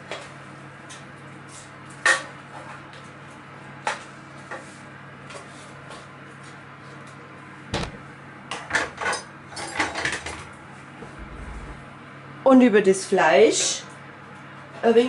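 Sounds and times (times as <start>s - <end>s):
low hum: 11.0s - 12.0s.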